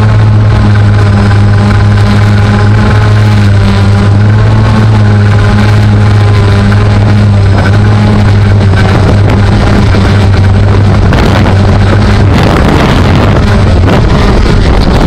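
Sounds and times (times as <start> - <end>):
drone propellers humming: 0.0 - 15.0.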